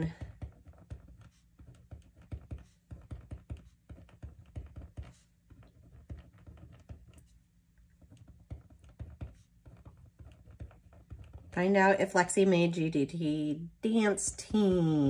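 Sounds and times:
pen writing on paper: 0:00.0 - 0:07.4, 0:08.0 - 0:11.6.

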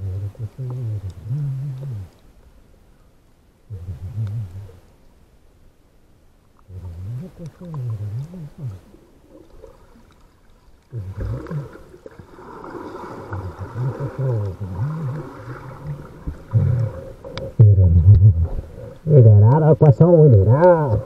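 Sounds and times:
man humming: 0:00.0 - 0:02.2, 0:03.7 - 0:04.8, 0:06.7 - 0:09.0, 0:10.9 - 0:11.8, 0:13.3 - 0:19.6.

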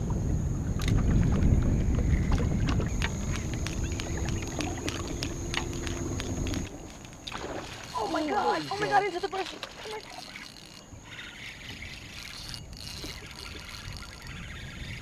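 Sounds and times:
wind buffeting microphone: 0:00.0 - 0:15.0
fishing reel clicking: 0:03.0 - 0:15.0.

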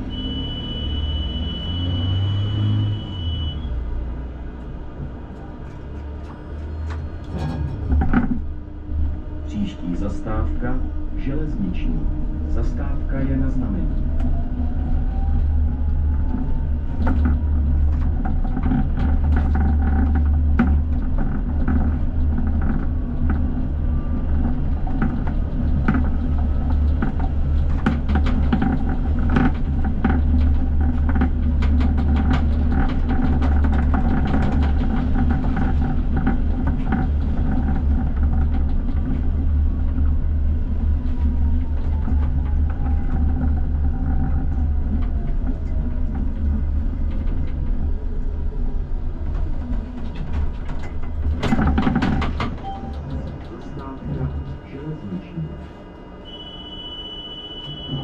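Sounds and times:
tram rumbling: 0:00.0 - 0:58.0
wheels clicking over rails: 0:12.2 - 0:54.4.

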